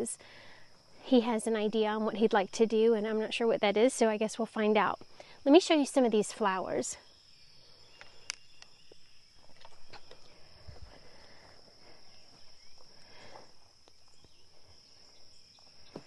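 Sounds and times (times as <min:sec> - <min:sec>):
crickets chirping: 0:00.0 - 0:16.0
footsteps rustling through garden: 0:08.0 - 0:16.0.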